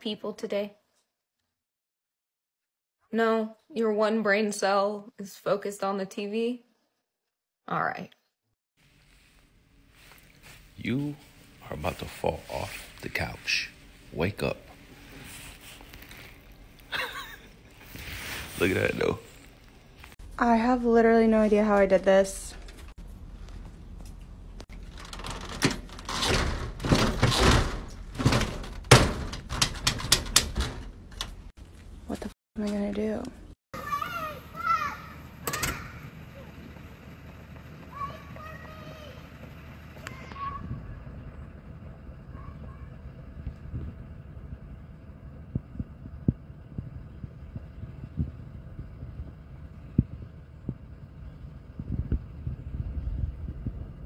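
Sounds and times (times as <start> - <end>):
door knocking and rattling: 24.7 - 31.5
wind buffeting microphone: 40.2 - 54.0.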